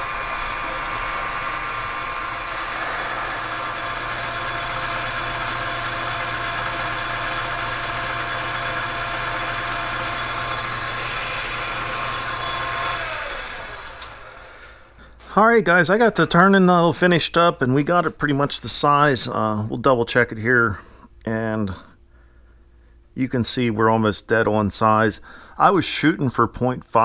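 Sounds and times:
lathe running with a whine: 0.0s - 15.0s
click: 14.0s - 14.2s.

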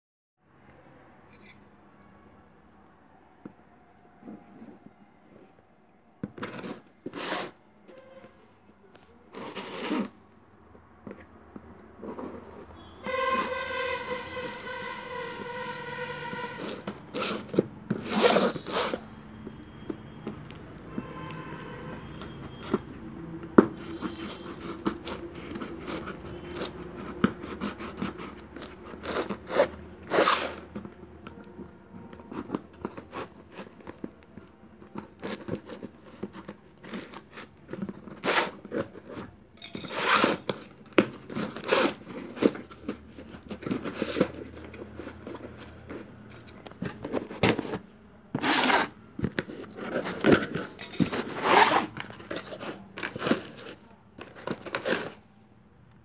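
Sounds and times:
tape tearing: 9.3s - 10.2s, 16.6s - 19.0s, 28.4s - 30.8s, 34.9s - 55.2s
scissors slitting packing tape: 36.8s - 42.8s.

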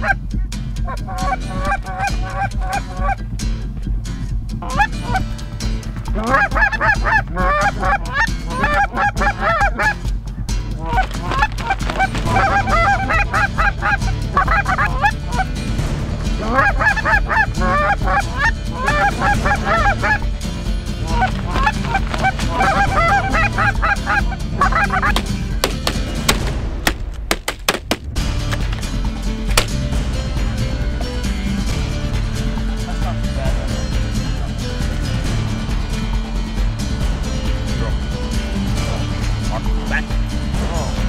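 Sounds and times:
goose honking and clucking: 0.0s - 0.2s, 0.8s - 3.2s, 4.6s - 5.3s, 6.1s - 10.1s, 10.7s - 20.3s, 20.9s - 26.4s.

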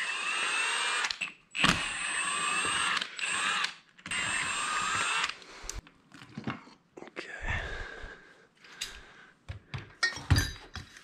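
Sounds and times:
impact wrench whirring: 0.0s - 5.8s.

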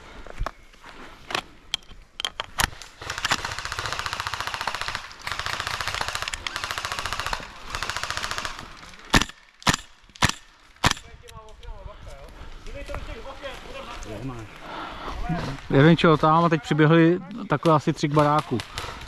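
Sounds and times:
sharp cracks: 2.5s - 11.5s, 17.5s - 19.0s
airsoft full-auto bursts: 3.0s - 11.0s
airsoft gun shots: 9.1s - 11.1s.

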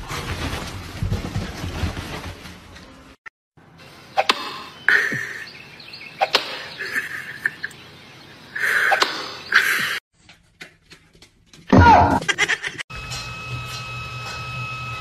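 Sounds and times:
comedy sound effect: 11.7s - 12.8s.

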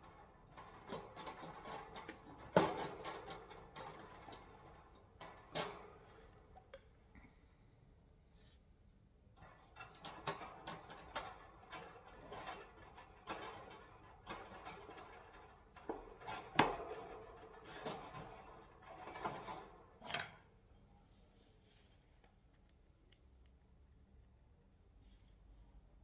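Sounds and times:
wire cage clinking and rattling: 0.0s - 6.6s, 9.4s - 20.5s.

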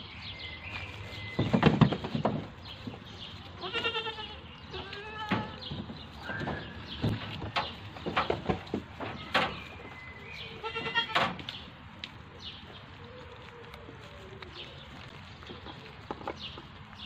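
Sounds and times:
kittens crunching dry food: 0.0s - 17.0s
farm animal bleating: 3.2s - 11.7s.

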